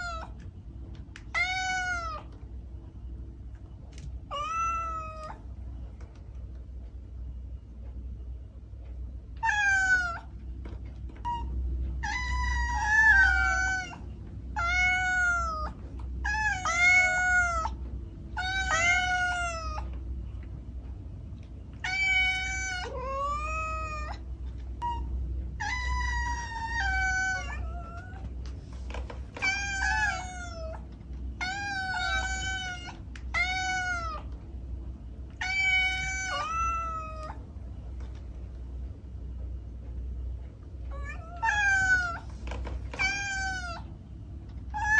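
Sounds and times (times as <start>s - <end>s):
kitten meowing: 1.3s - 2.2s, 42.9s - 43.8s.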